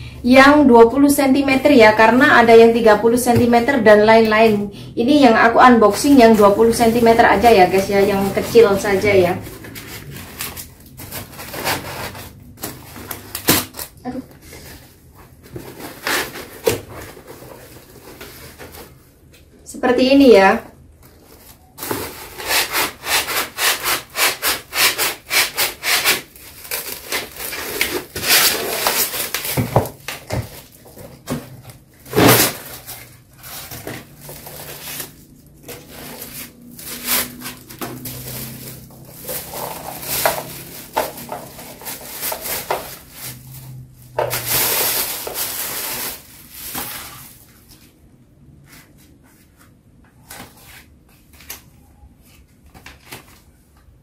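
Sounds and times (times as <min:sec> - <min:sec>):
plastic wrapping rustling: 0:05.2 - 0:19.3, 0:20.4 - 0:48.1
cardboard scraping and rubbing: 0:06.1 - 0:13.8, 0:14.4 - 0:19.0, 0:21.2 - 0:48.0.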